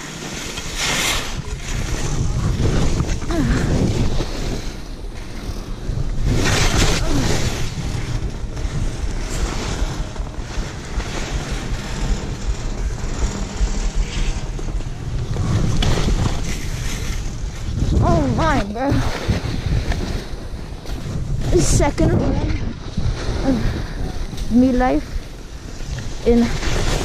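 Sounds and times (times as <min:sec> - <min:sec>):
skis scraping through snow: 0:00.0 - 0:22.2, 0:22.8 - 0:27.0
wind buffeting microphone: 0:00.0 - 0:27.0.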